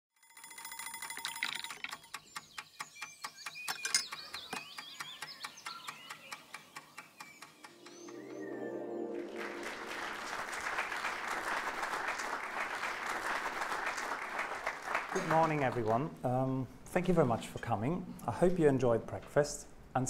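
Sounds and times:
clock-like ticking: 0:01.1 - 0:08.2.

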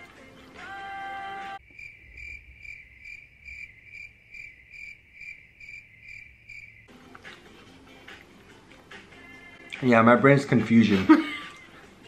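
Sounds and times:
crickets chirping: 0:01.6 - 0:06.9.

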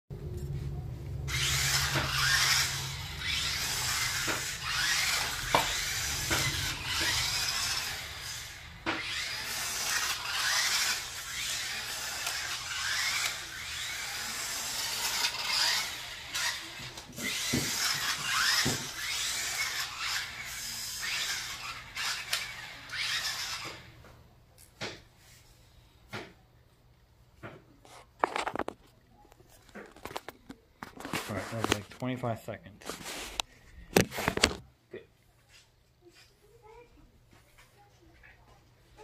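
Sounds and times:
toy truck electric motors whirring: 0:01.2 - 0:24.0, 0:29.6 - 0:31.9.

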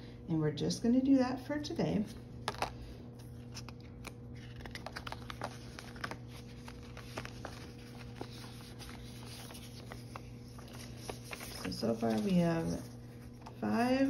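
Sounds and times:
paper bills rustling: 0:02.4 - 0:14.0.

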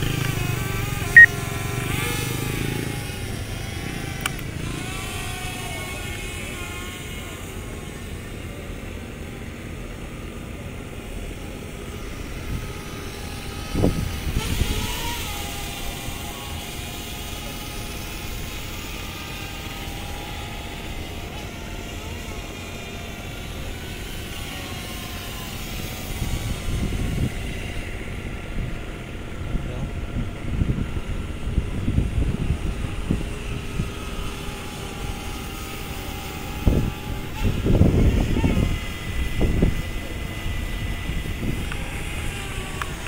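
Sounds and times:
outdoor rush: 0:00.0 - 0:06.6
drone propellers whining: 0:00.0 - 0:43.0.

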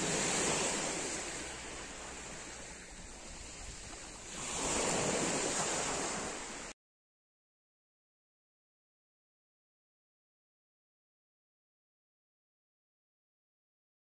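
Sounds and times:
sea waves breaking on pebbles: 0:00.0 - 0:06.7.

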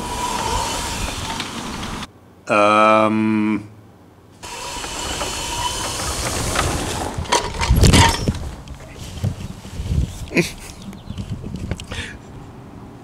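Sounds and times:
electric motors whining: 0:00.0 - 0:02.1, 0:04.4 - 0:07.5
rustling: 0:04.5 - 0:12.4
wheelchair tipping over crash: 0:04.6 - 0:08.9.

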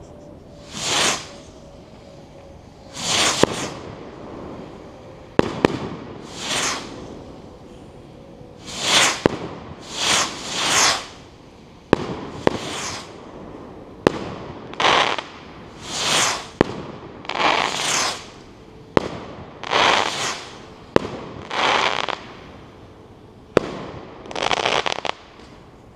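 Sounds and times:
firework rocket whooshing: 0:00.0 - 0:25.9
firework bursting with sharp bang: 0:00.6 - 0:01.5, 0:02.9 - 0:04.0, 0:05.4 - 0:07.1, 0:08.6 - 0:11.2, 0:11.9 - 0:13.2, 0:14.0 - 0:22.4.

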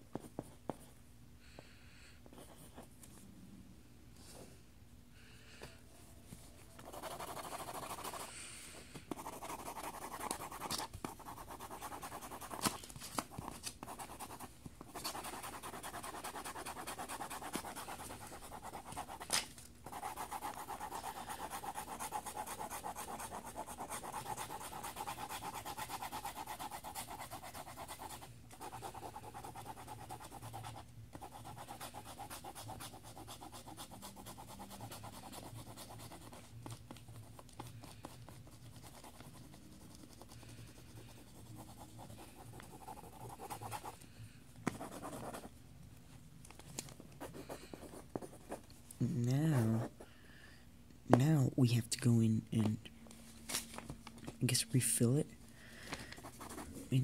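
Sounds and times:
pencil scratching on paper: 0:06.8 - 0:08.3, 0:09.1 - 0:44.0, 0:44.7 - 0:45.5, 0:56.2 - 0:57.0.

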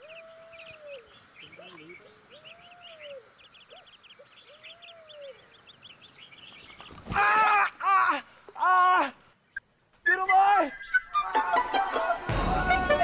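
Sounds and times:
lower whistled bird call: 0:00.0 - 0:06.8, 0:09.5 - 0:11.6
high bird chirps: 0:09.5 - 0:11.3.

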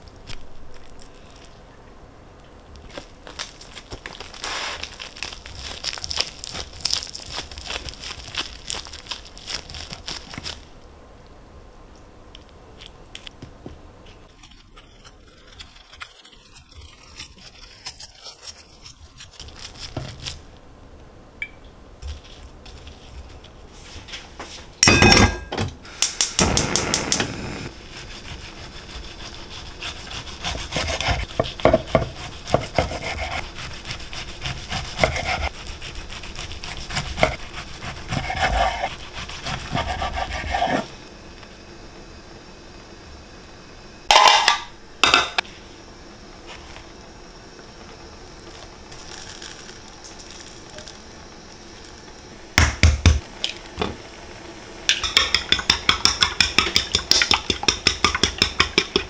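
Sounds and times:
knife sawing on cutting board: 0:27.8 - 0:40.9.

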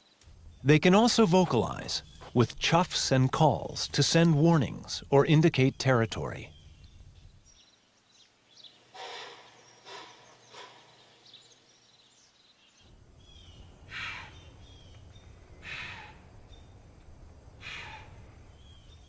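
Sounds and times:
faint bird chirps: 0:04.3 - 0:16.9, 0:17.6 - 0:19.0
deer snorting: 0:08.9 - 0:11.2, 0:17.6 - 0:18.4.

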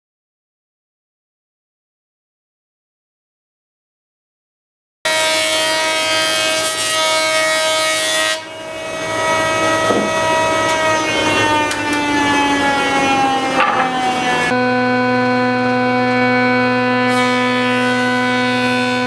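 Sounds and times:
jointer cutterhead whining: 0:08.0 - 0:19.0.

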